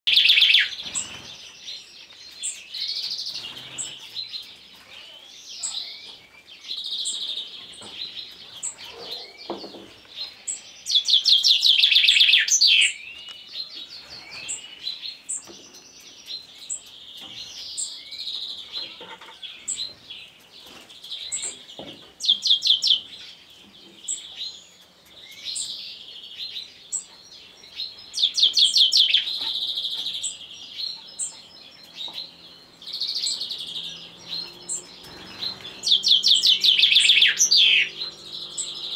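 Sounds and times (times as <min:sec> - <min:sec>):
chaffinch singing: 0:00.0 - 0:38.9.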